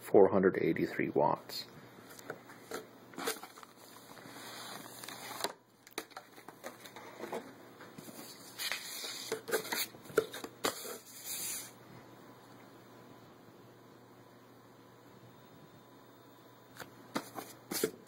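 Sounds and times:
paper rustling: 2.7 - 11.7.

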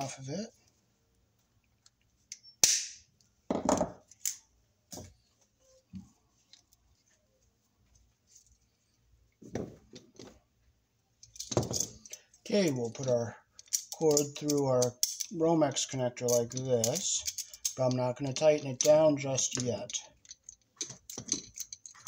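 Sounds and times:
cord knocking and rustling: 9.4 - 10.4, 11.4 - 12.0.

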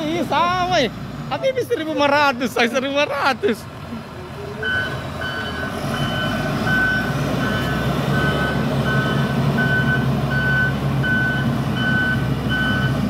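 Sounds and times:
diesel engine running: 0.0 - 13.0
back-up alarm beeping: 4.6 - 13.0.

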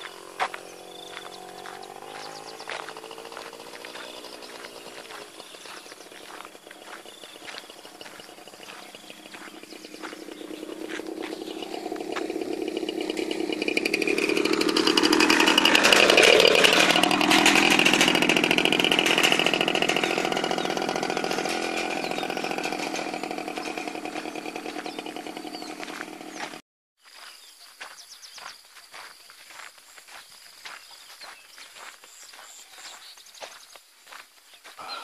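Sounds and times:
motorcycle engine passing by: 0.0 - 26.6.

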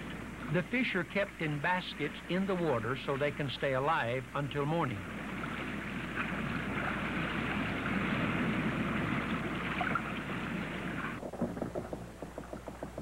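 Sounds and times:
motorboat running on water: 4.9 - 13.0.

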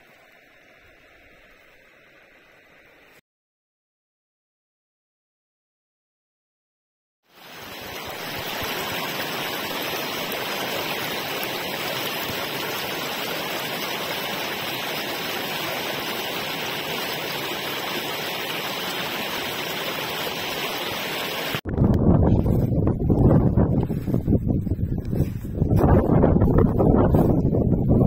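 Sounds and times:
stream rushing over rocks: 7.3 - 21.6.

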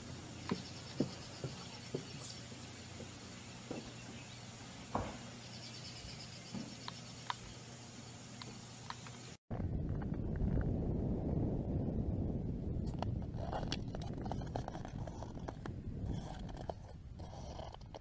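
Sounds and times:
insects trilling: 0.0 - 9.4.

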